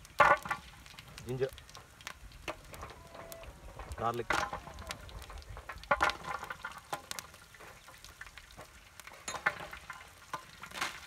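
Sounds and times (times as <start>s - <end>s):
sharp pops and clicks: 0.0s - 11.0s.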